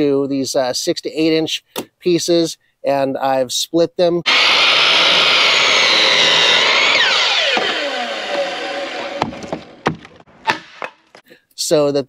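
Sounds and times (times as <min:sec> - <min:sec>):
motor winding down whine: 0:04.3 - 0:09.3
power saw cutting wood: 0:04.3 - 0:10.9
knocks: 0:09.2 - 0:11.0.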